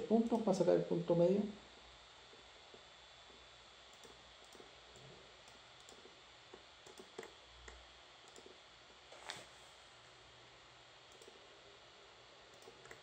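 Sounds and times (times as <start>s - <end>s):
low steady hiss: 0.0s - 13.0s
faint computer mouse clicks: 3.9s - 6.0s, 6.8s - 8.6s, 12.5s - 13.0s.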